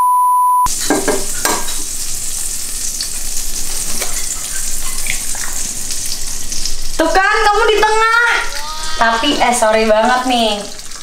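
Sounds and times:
test-tone beep: 0.0 - 0.7
spatula knocking a pan: 0.7 - 1.9
egg sizzling in a frying pan: 0.7 - 11.0.

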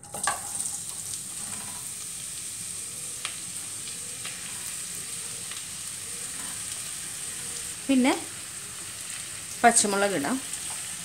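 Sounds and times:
oil popping: 0.0 - 7.6
onions sizzling in hot oil: 0.0 - 11.0.

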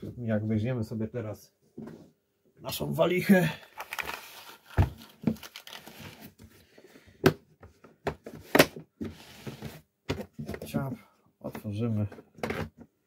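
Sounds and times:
plastic bag crinkling: 3.6 - 6.2.

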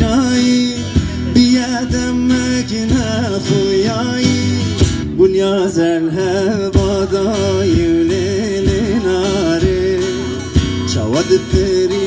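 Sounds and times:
plucked string instrument: 0.0 - 12.0
person singing: 5.5 - 12.0.

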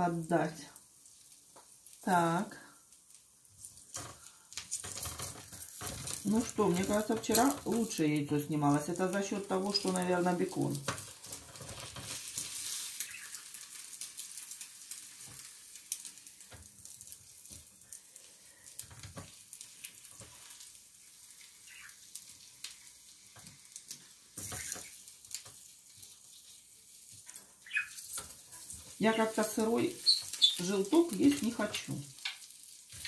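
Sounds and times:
egg sizzling on grill plate: 0.0 - 33.0
wooden spatula scraping plate: 4.7 - 7.8.

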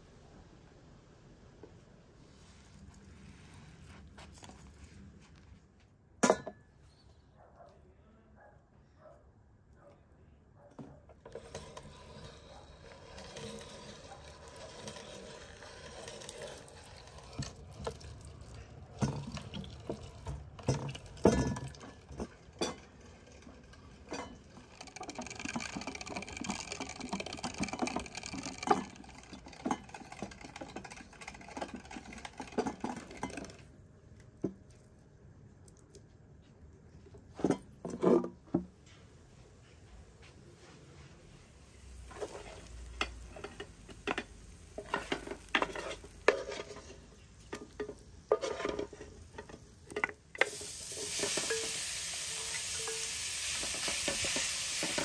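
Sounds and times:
meat grinder grinding meat: 11.4 - 18.2, 50.4 - 55.0.

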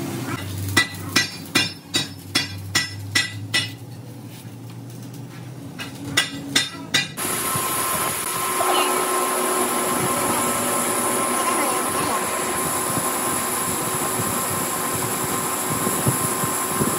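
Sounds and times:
hammer striking metal: 0.4 - 3.9, 5.8 - 7.2
machine running: 7.2 - 16.9.

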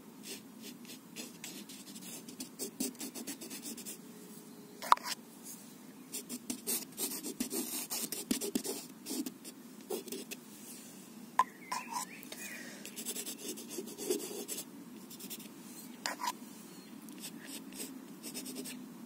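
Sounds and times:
brush scratching and tapping on paper: 7.4 - 9.3.

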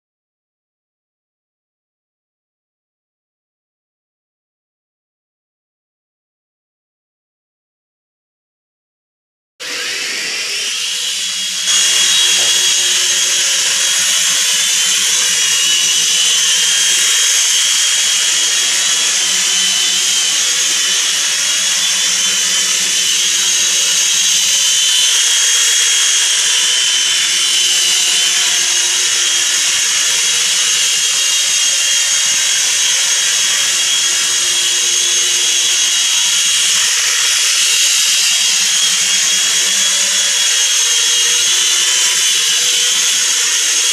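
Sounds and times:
toy helicopter rotors whining: 9.6 - 43.9.

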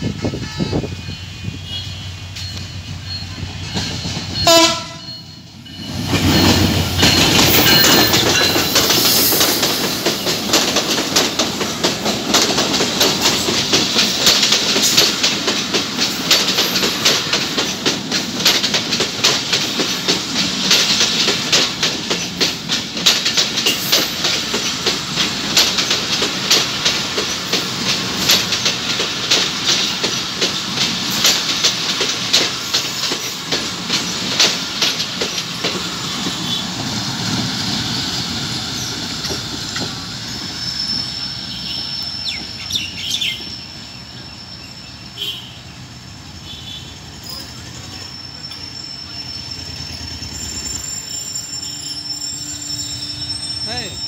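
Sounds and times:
diesel locomotive horn: 0.0 - 2.3, 4.4 - 5.2, 45.2 - 45.7
locomotive passing: 0.0 - 54.0
train wheels clattering over rail joints: 5.8 - 41.6.

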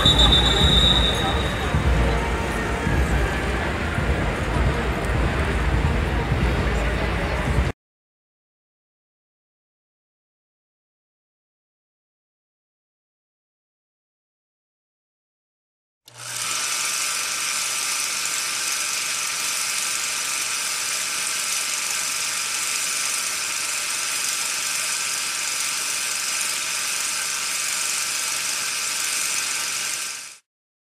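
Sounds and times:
whirring hiss: 16.4 - 30.4.

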